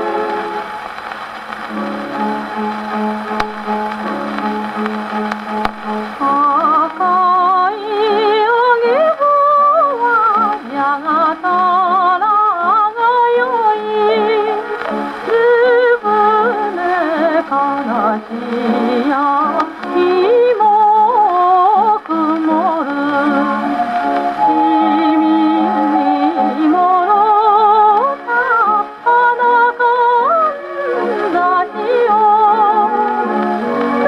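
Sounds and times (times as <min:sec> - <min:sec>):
old record of orchestral popular song: 0:00.0 - 0:34.0.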